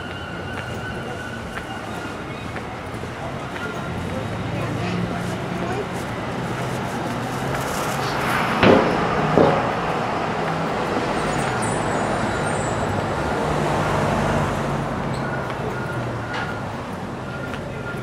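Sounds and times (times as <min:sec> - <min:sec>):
road noise: 0:00.0 - 0:18.0
sharp knocks: 0:08.5 - 0:09.9.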